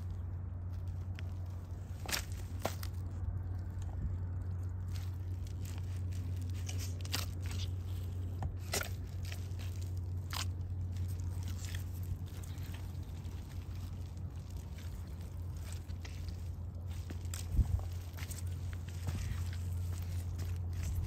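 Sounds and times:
footsteps in mud: 0:00.0 - 0:21.0
steady low hum: 0:00.0 - 0:21.0.

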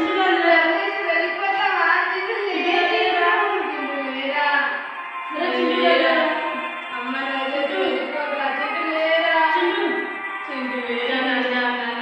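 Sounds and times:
music: 0:00.0 - 0:12.0
woman singing slow melody: 0:05.3 - 0:11.6.

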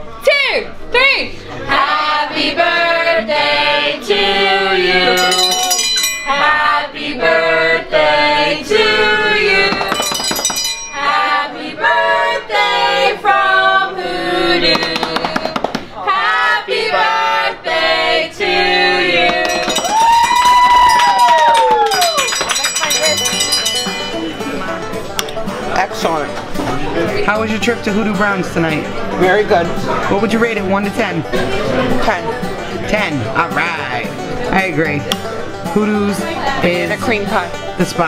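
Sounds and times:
group singing a celebration song: 0:01.5 - 0:20.3.

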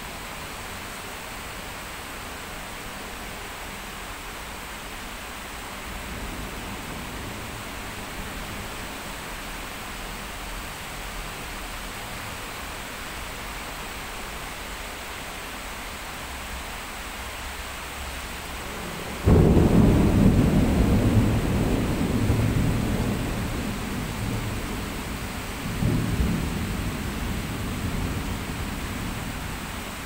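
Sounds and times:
heavy rain hissing: 0:00.0 - 0:30.0
thunder rumbling: 0:18.5 - 0:30.0.

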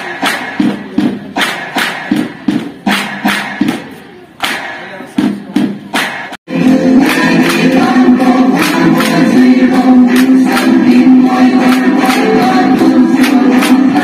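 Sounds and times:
bamboo poles clacking: 0:00.0 - 0:06.4
chorus of voices singing: 0:06.5 - 0:14.0.

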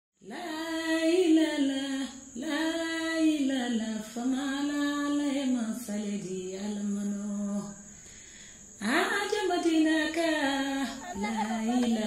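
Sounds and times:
high voice singing unaccompanied: 0:08.8 - 0:12.0.

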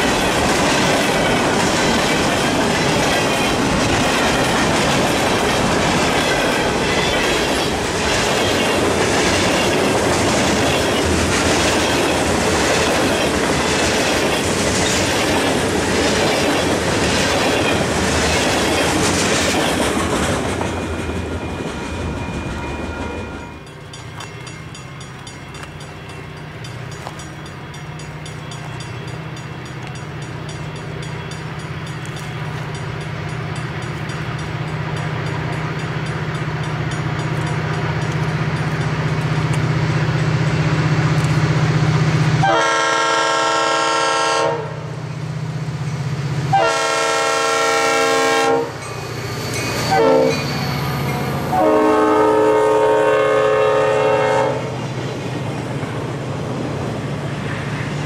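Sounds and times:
clickety-clack of wheels on rails: 0:00.0 - 0:43.1, 0:47.9 - 0:58.0
diesel locomotive engine drone: 0:00.0 - 0:58.0
multi-chime train air horn: 0:21.7 - 0:23.7, 0:42.4 - 0:45.0, 0:46.5 - 0:54.7.

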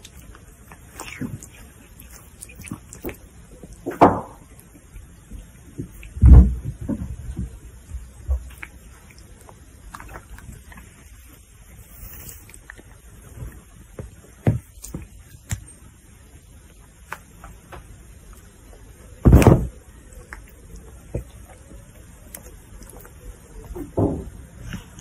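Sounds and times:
loud thump: 0:19.2 - 0:19.7.

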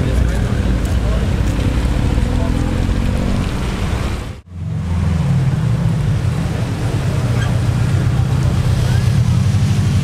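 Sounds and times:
car engines passing: 0:00.0 - 0:10.0.

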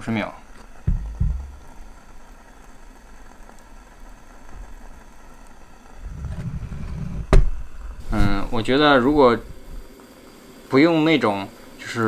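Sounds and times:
stove flame rushing: 0:00.0 - 0:12.0
low rumble: 0:06.0 - 0:09.9.

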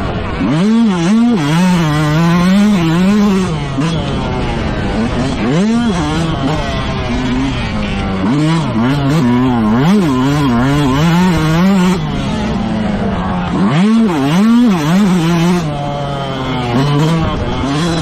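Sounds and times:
motocross bike engine revving: 0:00.0 - 0:18.0.

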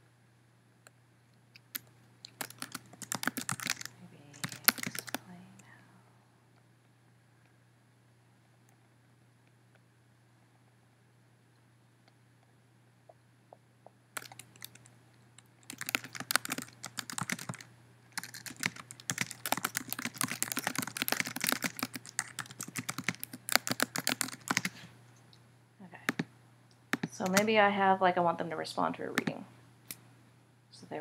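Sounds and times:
faint low hum: 0:00.0 - 0:31.0
typing on keyboard: 0:01.6 - 0:05.3, 0:14.2 - 0:24.8, 0:26.9 - 0:27.4.

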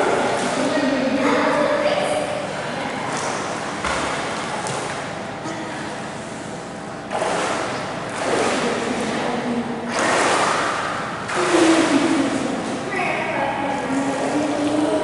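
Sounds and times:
water splashing in indoor pool: 0:00.0 - 0:15.0.

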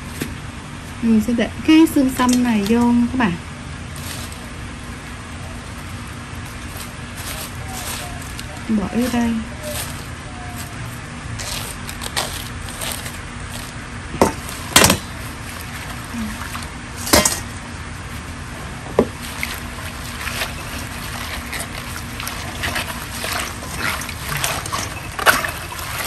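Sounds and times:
wet leaves squeezed in water: 0:05.5 - 0:13.8, 0:14.4 - 0:17.2, 0:19.1 - 0:26.0
water sloshing: 0:11.4 - 0:26.0.

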